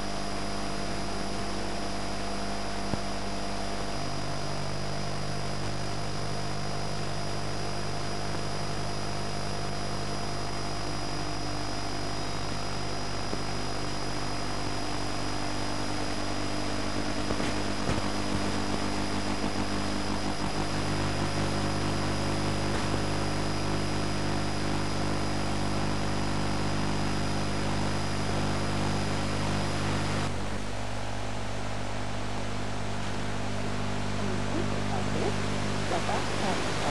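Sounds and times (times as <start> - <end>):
low buzz and hiss: 0.0 - 36.9
thin high whine: 0.0 - 36.9.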